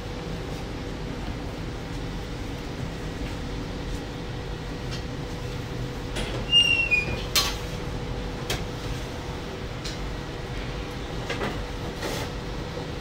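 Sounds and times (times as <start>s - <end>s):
short squeak: 6.5s - 7.2s.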